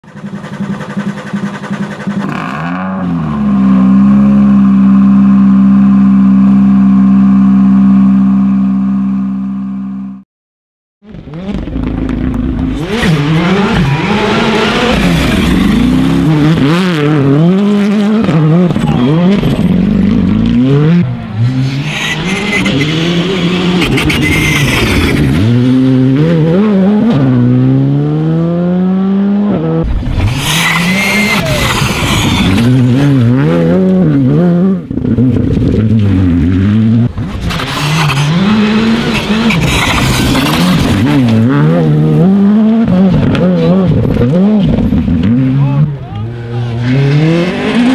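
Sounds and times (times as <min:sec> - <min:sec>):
steady engine-like drone: 0:00.0 - 0:02.6
rally car engines revving: 0:00.0 - 0:10.2, 0:11.0 - 0:47.9.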